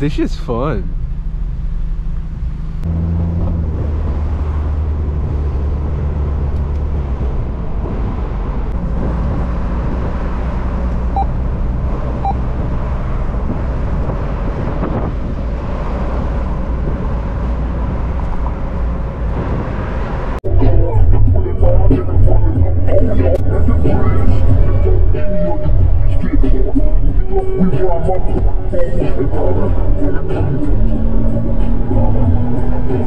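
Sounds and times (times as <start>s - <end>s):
car engine hum: 0.0s - 33.0s
road noise inside car: 0.0s - 33.0s.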